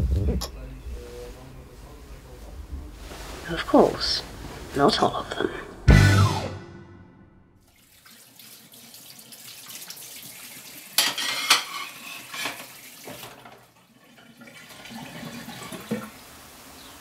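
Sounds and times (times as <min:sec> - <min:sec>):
crockery and cutlery clinking: 0:11.0 - 0:13.6.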